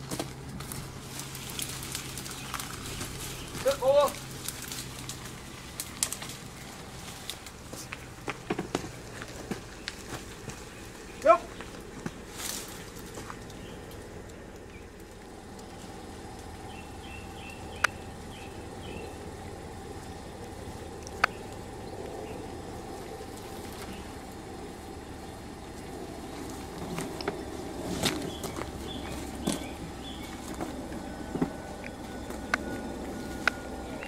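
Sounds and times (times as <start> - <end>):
car engine idling: 0.0 - 34.0
bird chirps: 2.2 - 4.3, 9.6 - 15.0, 15.7 - 26.8, 27.4 - 34.0
sharp clicks: 17.4 - 18.5.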